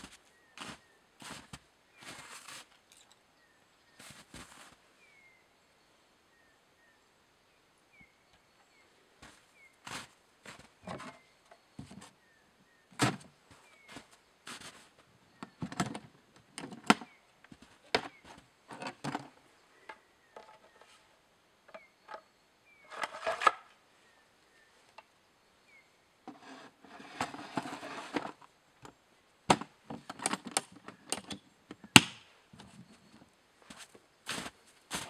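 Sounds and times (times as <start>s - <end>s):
footsteps crunching in snow: 0.0s - 2.8s, 4.0s - 4.8s, 9.2s - 10.8s, 13.6s - 14.9s, 33.6s - 35.0s
knocks and scrapes on wood: 26.3s - 28.4s.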